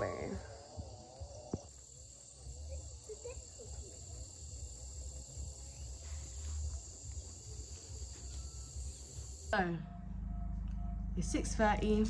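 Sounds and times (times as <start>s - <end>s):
insects chirring: 0.0s - 9.6s.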